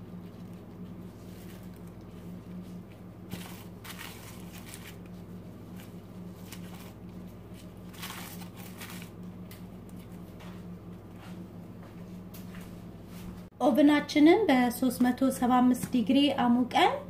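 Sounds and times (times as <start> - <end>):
glove and foil rustling: 0.0 - 10.4
soft squishing: 0.0 - 11.2
steady low hum: 0.0 - 17.0.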